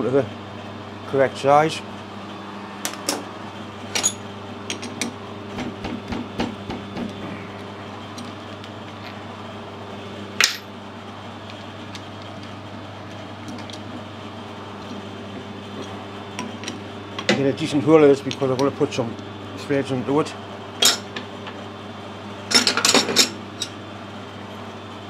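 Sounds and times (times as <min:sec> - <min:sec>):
steady hum: 0:00.0 - 0:25.0.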